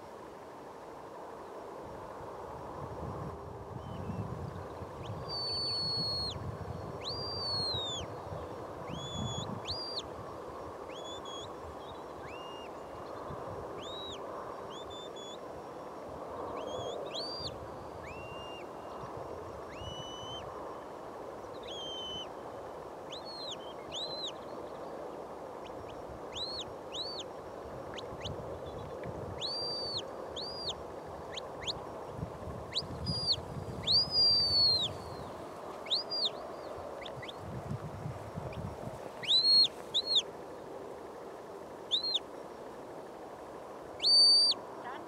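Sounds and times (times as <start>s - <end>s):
wind rumble on microphone: 1.0s - 21.7s, 22.4s - 45.0s
shepherd's whistle: 39.2s - 40.2s, 44.0s - 44.6s.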